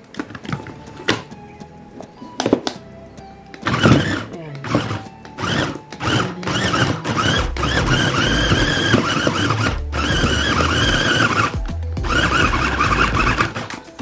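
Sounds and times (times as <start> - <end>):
electric meat chopper whining: 3.6 - 13.8.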